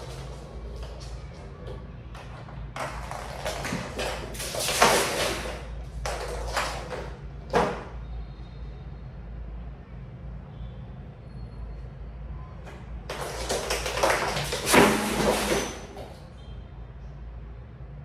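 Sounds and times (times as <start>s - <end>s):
cats scampering and scuffling: 0.0s - 7.9s, 12.7s - 16.2s.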